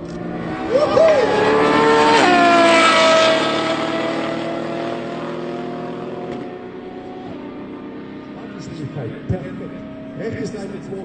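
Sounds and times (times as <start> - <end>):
car engines accelerating hard: 0.0 - 11.0.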